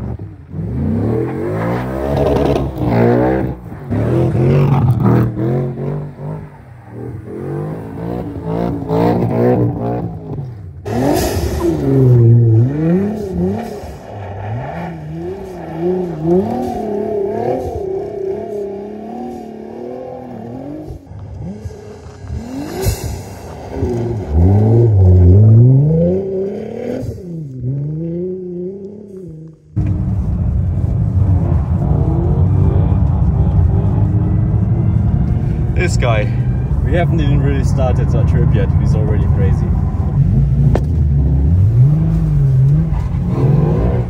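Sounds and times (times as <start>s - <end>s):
car engine revving: 0.0s - 44.0s.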